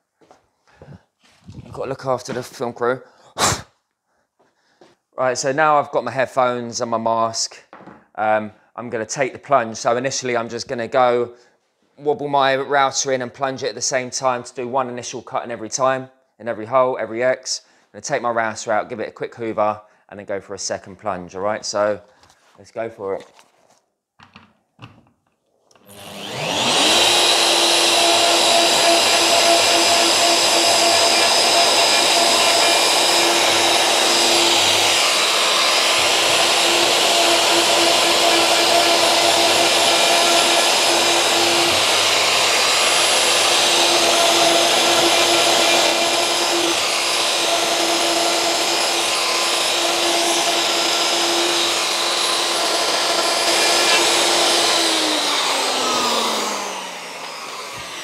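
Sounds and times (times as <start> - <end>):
router whining: 25.7 - 58.0.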